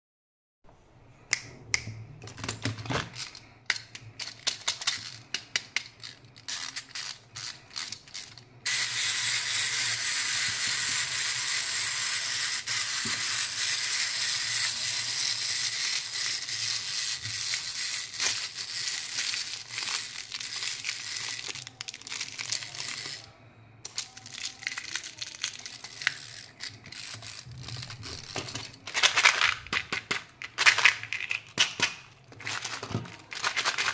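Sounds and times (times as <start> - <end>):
toy mechanism whirring: 2.7 - 33.9
plastic containers clicking and rattling: 23.9 - 33.9.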